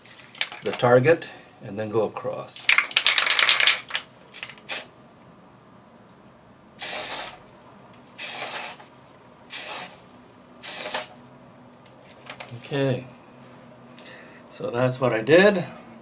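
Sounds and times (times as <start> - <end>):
spray paint can hissing: 2.7 - 4.9, 6.8 - 7.4, 8.2 - 8.8, 9.5 - 10.0, 10.6 - 11.2.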